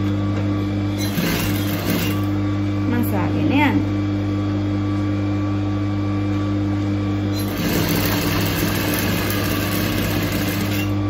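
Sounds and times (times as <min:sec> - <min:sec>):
sewing machine stitching: 0:01.0 - 0:02.3, 0:07.4 - 0:11.0.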